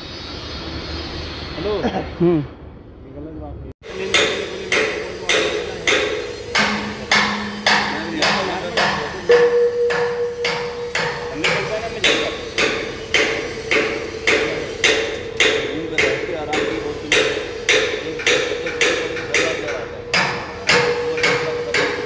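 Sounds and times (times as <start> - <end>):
hammer striking steel wedges: 3.8 - 22.0.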